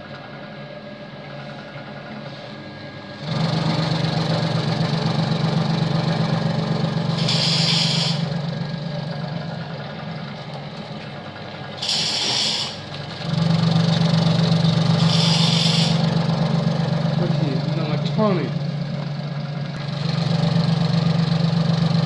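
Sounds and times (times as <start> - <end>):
vegetable cutting machine chopping: 3.2 - 8.5, 11.8 - 18.4.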